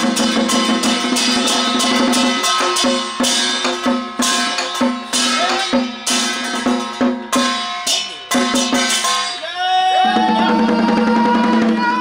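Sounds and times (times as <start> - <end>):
barrel drums beating: 0.0 - 9.4
ringing metal percussion: 0.0 - 9.5.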